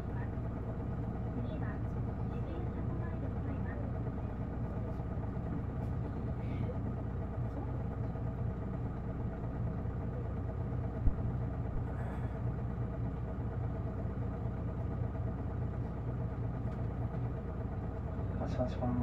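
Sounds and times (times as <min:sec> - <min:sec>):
bus diesel engine humming: 0:00.0 - 0:19.0.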